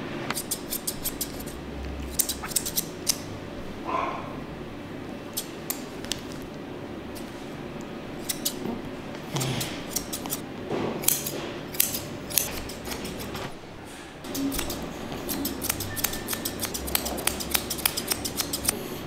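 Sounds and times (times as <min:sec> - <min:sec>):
grooming shears snipping fur: 0:00.3 - 0:03.2, 0:05.3 - 0:06.3, 0:08.2 - 0:08.7, 0:09.3 - 0:10.4, 0:11.0 - 0:13.5, 0:14.3 - 0:19.0.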